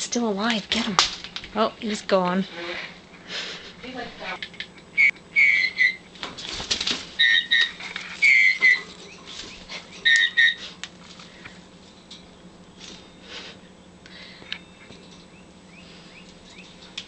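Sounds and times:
parrot whistled chirps: 5.0 - 6.0, 7.2 - 8.9, 10.0 - 10.6
feathers rustling: 6.2 - 12.0.

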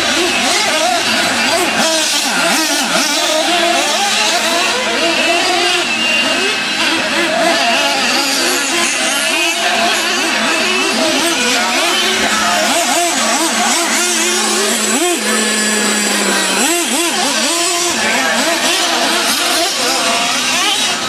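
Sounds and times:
small engines revving: 0.0 - 21.0.

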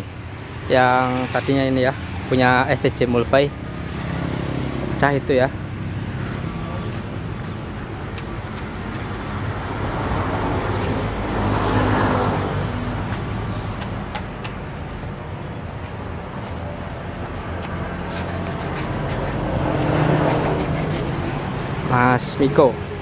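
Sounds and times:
vehicle engine humming: 0.0 - 23.0.

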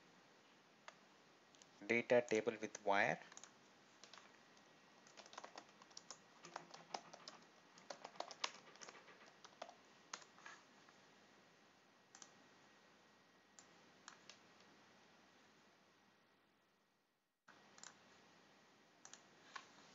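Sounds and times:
typing on computer keyboard: 2.7 - 4.4, 5.0 - 10.3.

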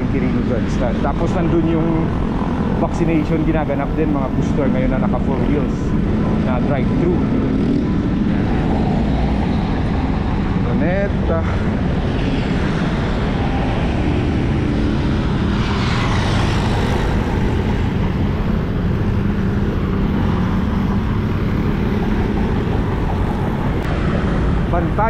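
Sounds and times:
road traffic noise: 0.0 - 25.0
wind rumbling on microphone: 0.0 - 25.0.

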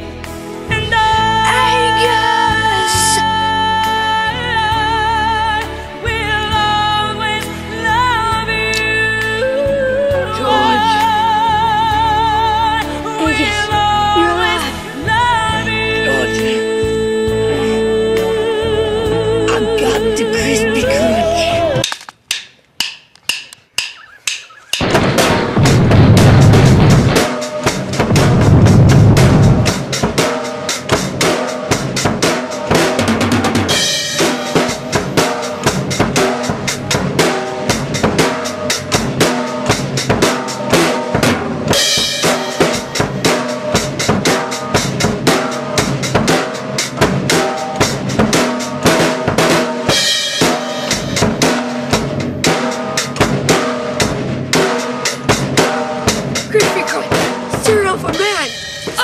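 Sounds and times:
fast drum-kit beat music: 1.1 - 3.3, 10.2 - 12.2, 13.1 - 15.0, 19.0 - 21.9, 23.8 - 59.0.

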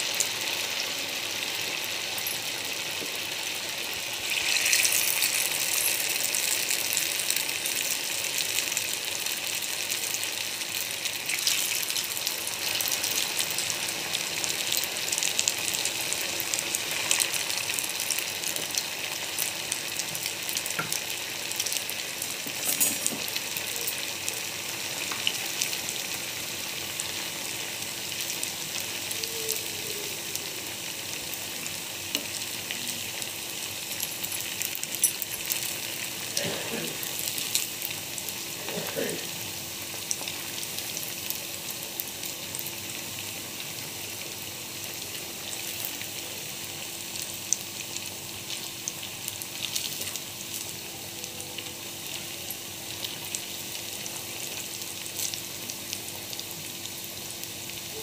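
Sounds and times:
deep-frying in hot oil: 0.0 - 58.0
oil crackling and popping: 4.1 - 9.6, 47.2 - 50.8.

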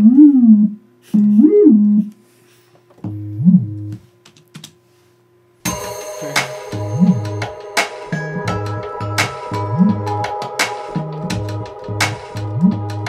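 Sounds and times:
sliding sine bass: 3.0 - 4.0, 5.7 - 10.4, 11.0 - 13.0
synth music: 5.7 - 13.0.

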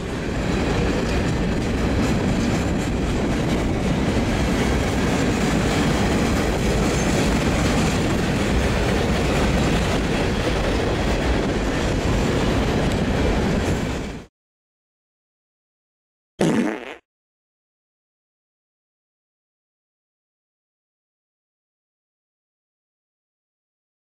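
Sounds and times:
train wheels rumbling on rail: 0.0 - 14.3.

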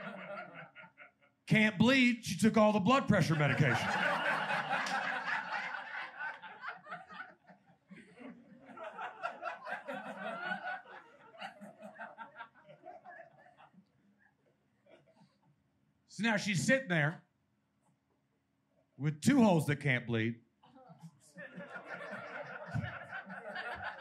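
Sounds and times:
audience laughing: 0.0 - 1.4, 3.1 - 13.9, 21.2 - 24.0.

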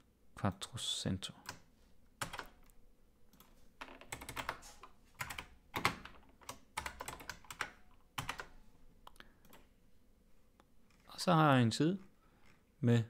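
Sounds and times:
typing on computer keyboard: 2.2 - 8.6.

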